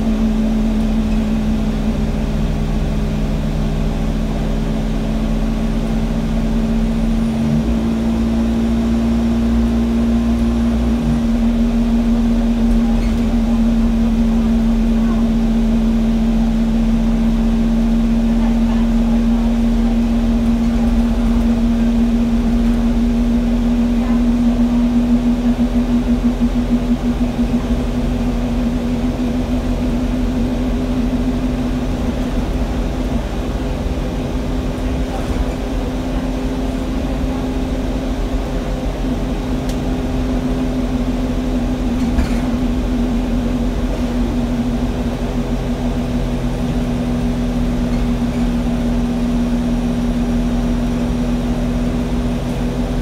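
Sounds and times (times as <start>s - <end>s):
bus diesel engine: 0.0s - 53.0s
engine cooling fan whine: 0.0s - 53.0s
road rumble: 0.0s - 53.0s.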